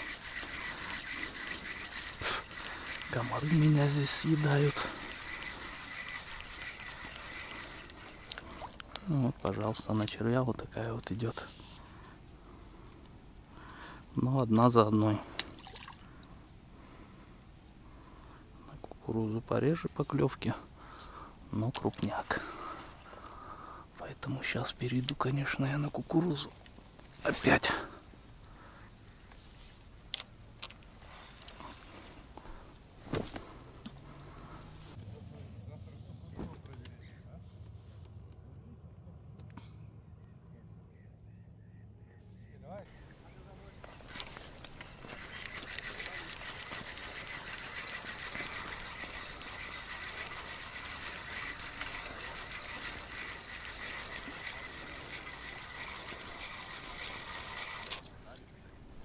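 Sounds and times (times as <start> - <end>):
fishing rod clicks in reeds: 0.0 - 10.0, 21.7 - 22.1, 25.0 - 25.2, 29.8 - 32.4, 43.8 - 58.2
waterside hiss with crackling: 0.0 - 14.1, 14.9 - 33.0, 42.9 - 59.0
reed stems rustling: 0.0 - 17.2, 17.8 - 35.0, 42.9 - 59.0.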